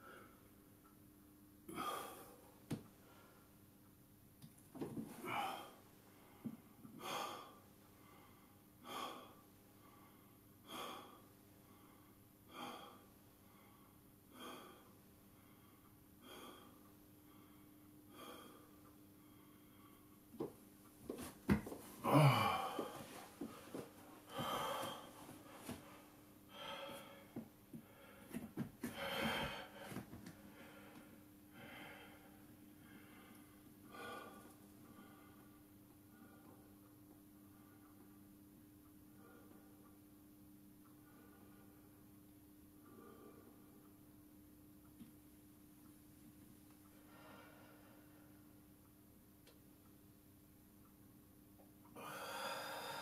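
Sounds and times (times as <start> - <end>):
man breathing hard: 1.7 - 3.5, 5.2 - 20.5, 22.0 - 35.6, 46.9 - 48.4, 52.0 - 53.0
man grunting: 22.0 - 23.0.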